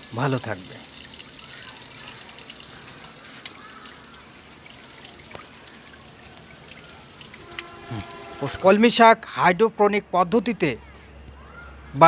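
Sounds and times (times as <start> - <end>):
water dripping: 0.0 - 8.7
water pouring from pipe: 0.0 - 8.7.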